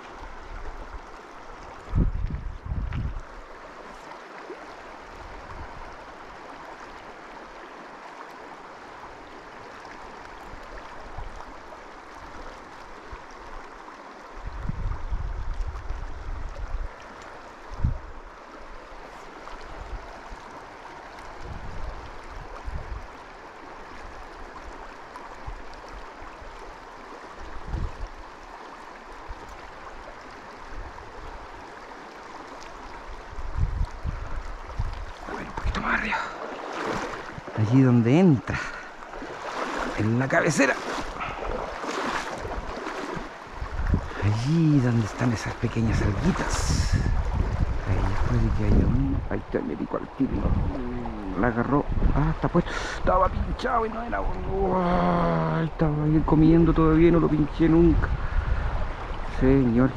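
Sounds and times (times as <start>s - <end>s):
river water flowing: 0.0s - 59.9s
microphone rumbles: 43.6s - 45.2s, 45.9s - 49.6s, 50.2s - 52.4s.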